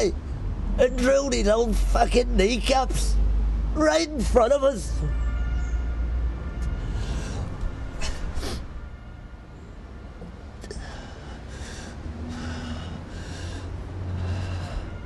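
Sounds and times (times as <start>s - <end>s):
man breathing hard: 6.7s - 8.8s, 10.6s - 15.0s.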